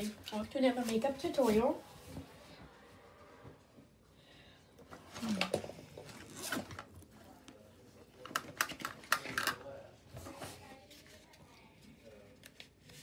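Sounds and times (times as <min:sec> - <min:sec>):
objects clicking and knocking: 0:08.2 - 0:09.7.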